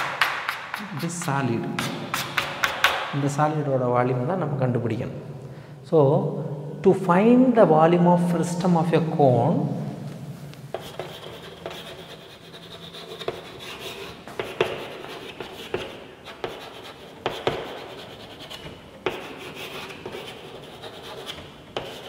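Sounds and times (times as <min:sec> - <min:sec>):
chalk scratching on chalkboard: 0:00.0 - 0:03.1, 0:10.7 - 0:22.0
chalk tapping on board: 0:00.0 - 0:03.1, 0:10.7 - 0:22.0.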